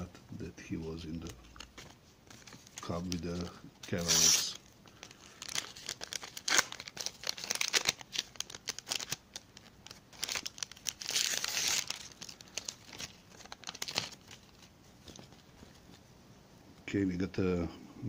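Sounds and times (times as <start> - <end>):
wrapper tearing and crinkling: 1.5 - 15.4.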